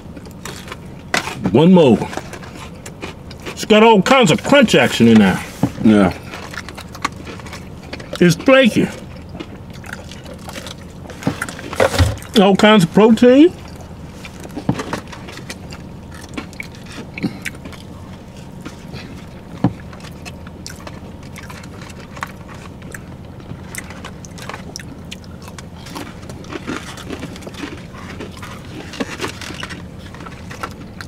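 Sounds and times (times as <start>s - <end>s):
crunching of chewing fried chicken: 0.0s - 31.0s
steady low hum: 0.0s - 31.0s.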